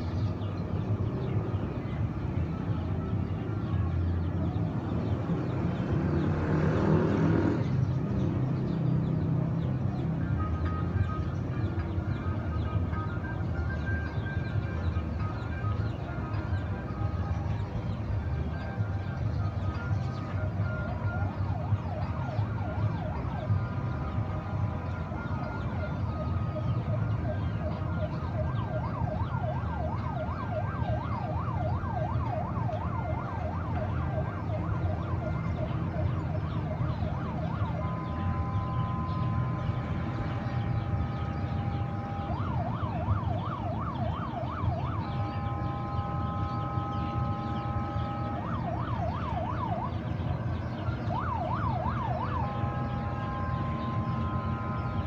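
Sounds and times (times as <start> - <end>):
sirens wailing yelp: 0.0 - 55.0
multi-tone horn blast: 37.5 - 42.8, 45.0 - 48.8, 52.1 - 55.0.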